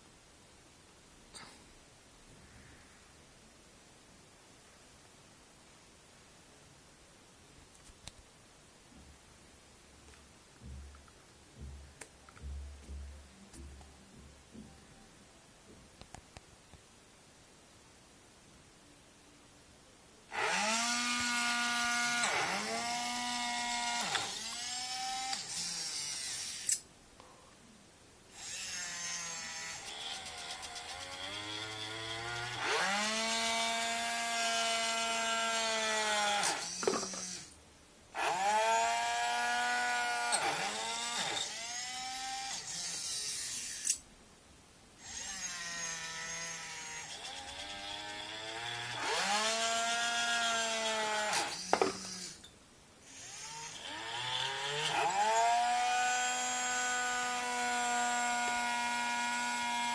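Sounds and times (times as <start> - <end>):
robot arm motors whining: 20.4 - 26.8, 39.0 - 44.0, 51.2 - 52.5.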